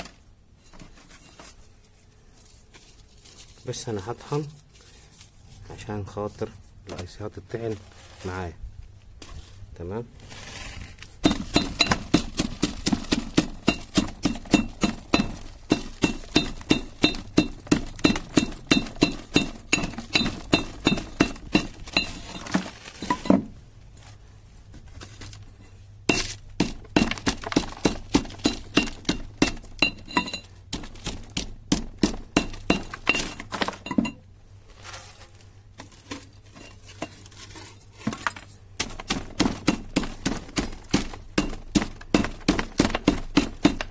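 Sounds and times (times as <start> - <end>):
pestle pounding in metal mortar: 11.2 - 22.5, 26.0 - 34.2, 38.8 - 43.9.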